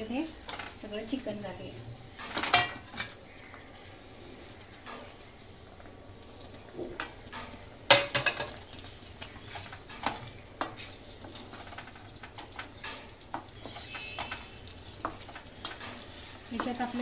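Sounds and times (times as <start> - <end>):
light sizzle: 0.0 - 17.0
wooden spatula scraping pan: 8.4 - 17.0.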